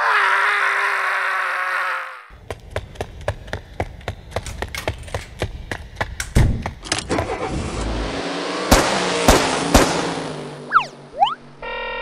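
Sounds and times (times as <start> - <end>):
car engine starting and revving: 7.0 - 11.1
sharp bangs: 8.6 - 11.0.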